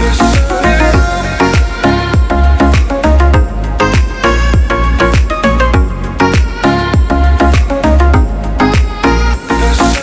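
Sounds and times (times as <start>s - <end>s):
background music with drum beat: 0.0s - 10.0s.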